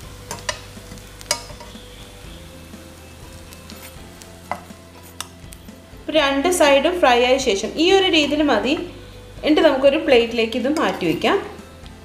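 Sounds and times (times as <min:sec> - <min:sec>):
bread sizzling in frying pan: 0:00.0 - 0:12.0
metal spatula clicking on pan: 0:00.3 - 0:01.8.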